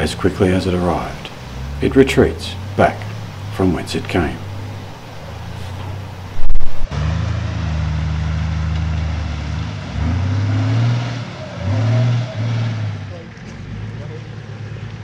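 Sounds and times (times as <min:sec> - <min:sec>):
engine droning and revving: 0:00.0 - 0:15.0
loud thump: 0:05.8 - 0:06.9.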